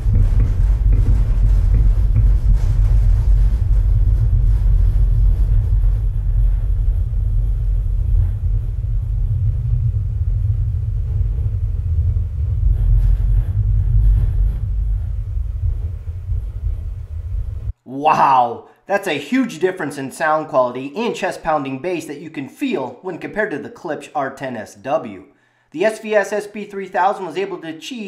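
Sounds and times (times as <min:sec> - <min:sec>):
deep loud soundtrack bass: 0:00.0 - 0:17.8.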